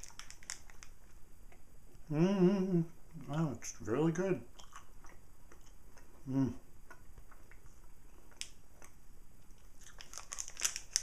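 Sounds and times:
person humming: 2.1 - 3.0, 6.2 - 6.6
person chewing: 4.5 - 11.0.

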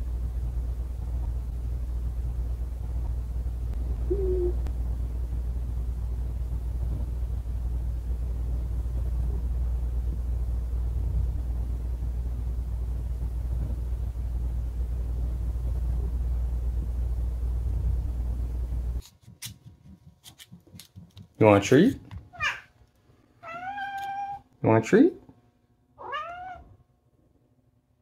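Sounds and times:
cat purring: 3.9 - 4.7.

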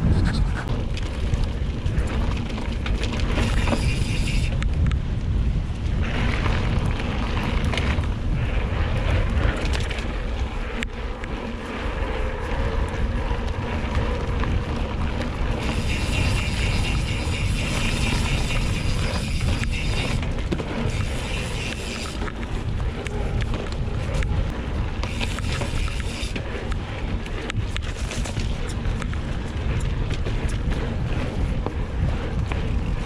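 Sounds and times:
bike tyres rolling on gravel: 0.0 - 33.0
wind buffeting microphone: 0.0 - 33.0.

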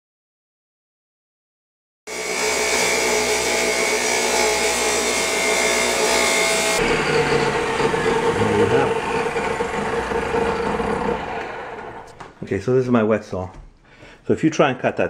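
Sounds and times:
saw blade cutting tile: 2.1 - 12.4
tile saw running: 2.1 - 12.4.

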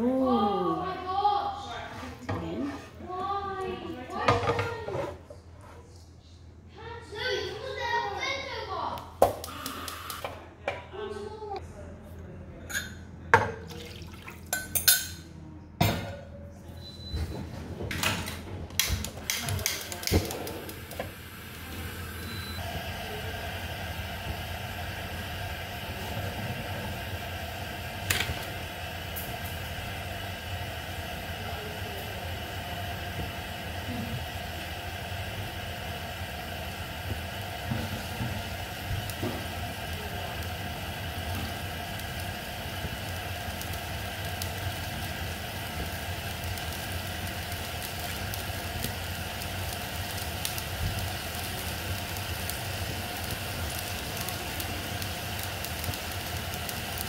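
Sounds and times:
liquid simmering in a skillet: 19.0 - 57.0.

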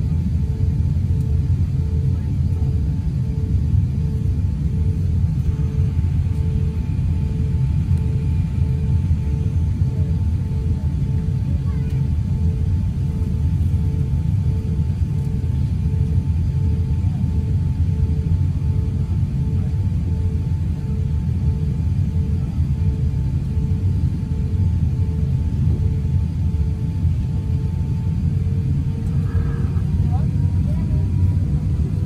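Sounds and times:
aircraft cabin engine rumble: 0.0 - 32.0
faint pulsing tone: 25.0 - 32.0.

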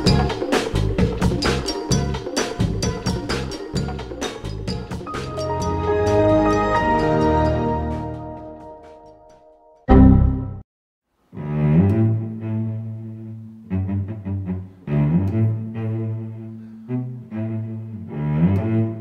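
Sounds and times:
low bowed strings: 11.4 - 19.0.

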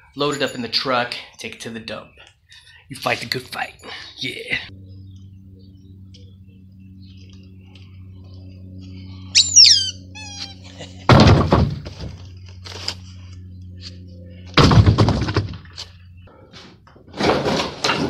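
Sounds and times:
short high squeaks: 9.4 - 10.7
lumber crashing onto debris pile: 14.6 - 15.6, 17.1 - 18.0
wood clattering: 17.1 - 18.0.

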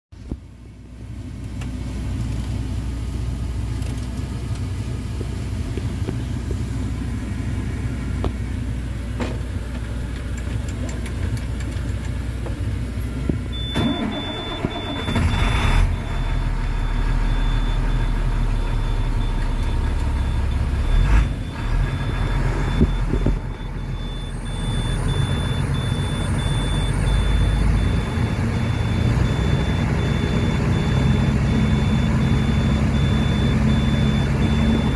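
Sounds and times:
diesel engine starting and idling: 0.2 - 34.9
high warning beeper: 13.5 - 34.9.

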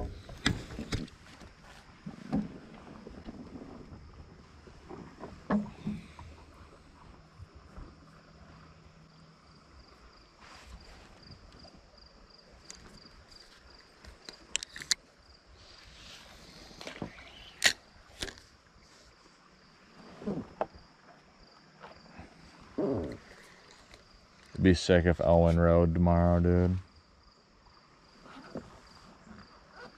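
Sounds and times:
river ambience: 0.0 - 29.9
high pulsing insect trill: 5.6 - 18.8, 20.7 - 29.9.

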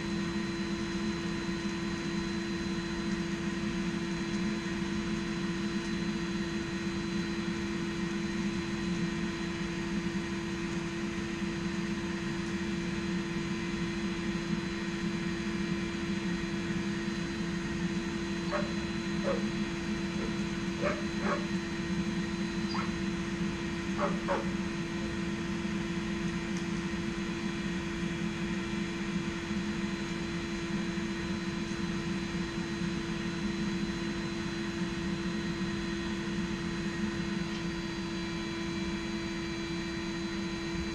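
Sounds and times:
electric air blower hum: 17.0 - 28.2
dog barking: 18.4 - 21.6, 22.7 - 23.0, 24.0 - 24.7.

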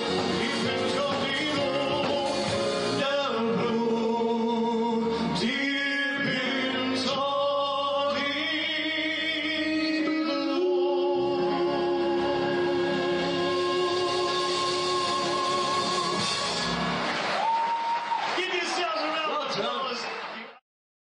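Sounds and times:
man singing with vibrato: 0.0 - 16.7
live band music: 0.0 - 17.6.

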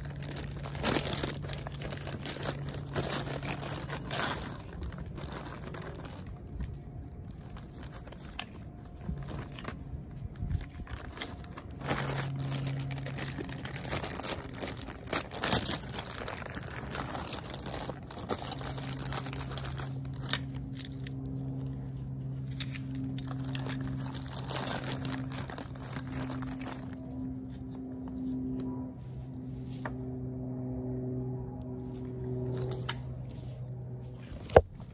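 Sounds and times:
plastic bags crinkling: 0.0 - 21.2, 22.5 - 27.2
low steady hum: 0.0 - 34.9.

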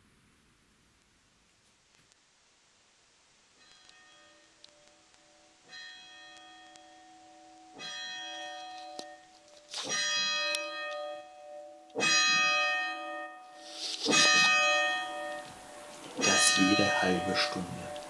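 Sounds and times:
church bell striking: 5.2 - 18.0.

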